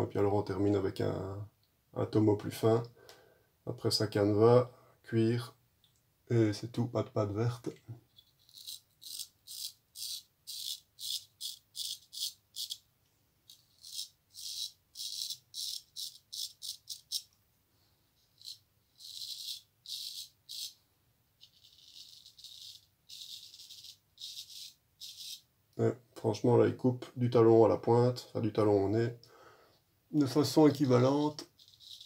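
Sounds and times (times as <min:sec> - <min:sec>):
razor scraping stubble: 0:08.1 - 0:12.8.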